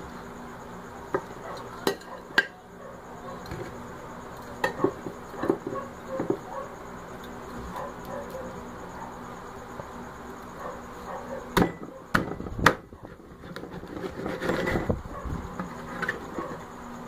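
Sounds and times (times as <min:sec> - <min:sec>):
pieces scraping across board: 0:13.3 - 0:15.0.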